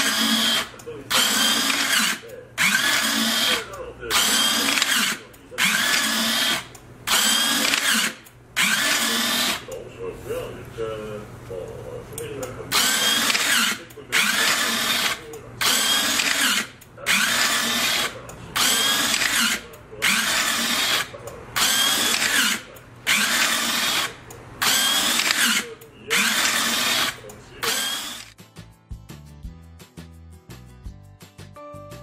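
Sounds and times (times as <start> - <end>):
electric motor whirring whine: 0.0 - 9.7, 12.8 - 28.4.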